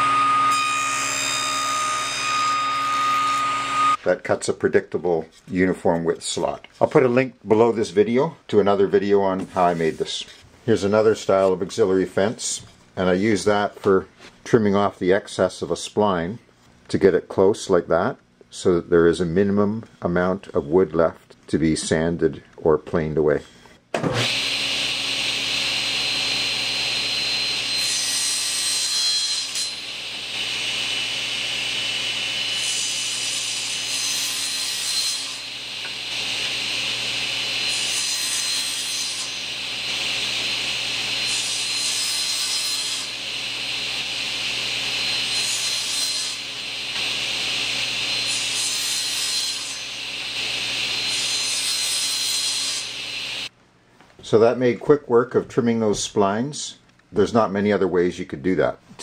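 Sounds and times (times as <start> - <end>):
table saw running: 0.0 - 4.0, 24.1 - 53.5
table saw cutting wood: 0.0 - 4.1, 24.0 - 53.5.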